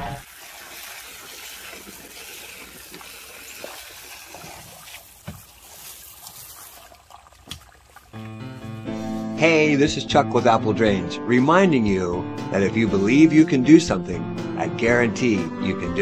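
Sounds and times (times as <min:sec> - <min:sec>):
water splashing onto gravel: 0:00.2 - 0:08.7.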